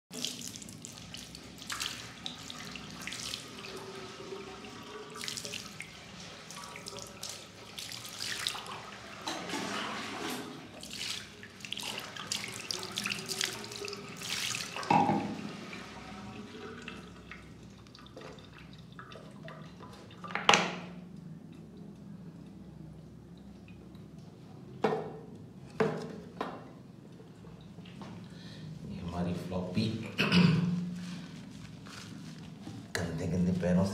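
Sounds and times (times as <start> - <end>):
water splashing in a sink: 0.1 - 21.9
hands rubbing wet fur: 31.0 - 32.8.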